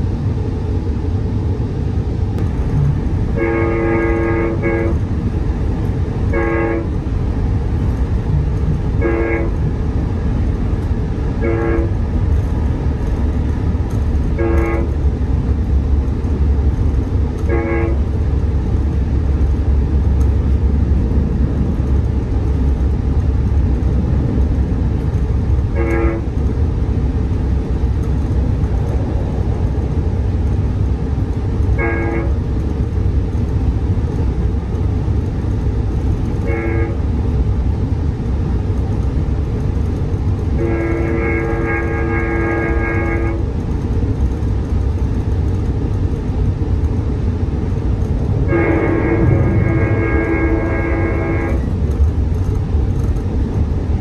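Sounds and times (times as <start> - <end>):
low rumble of moving train: 0.0 - 54.0
train horn blasts: 3.3 - 5.1, 6.3 - 7.1, 8.6 - 9.7, 11.3 - 12.5, 13.9 - 15.0, 17.4 - 18.2, 25.7 - 26.4, 31.7 - 32.5, 36.3 - 37.0, 40.5 - 43.5, 48.3 - 52.0.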